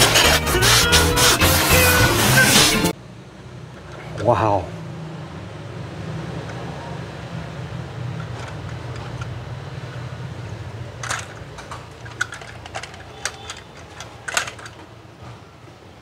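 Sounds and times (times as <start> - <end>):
toy truck clattering in plastic basket: 11.0 - 15.0.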